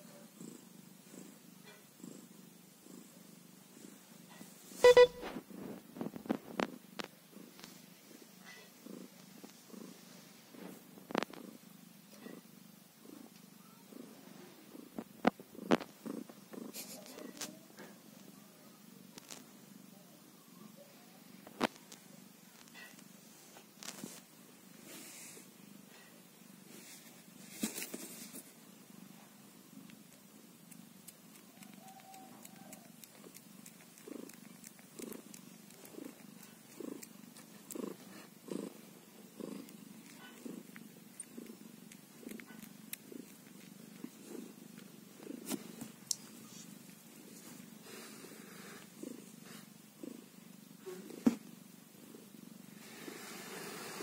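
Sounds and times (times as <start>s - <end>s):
cat purring: 0.0s - 54.0s.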